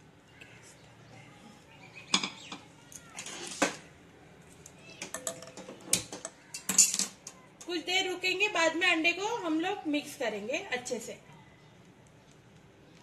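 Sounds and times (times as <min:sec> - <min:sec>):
utensils and dishes clicking: 0:05.0 - 0:07.4
faint sizzle of eggs: 0:11.2 - 0:13.0.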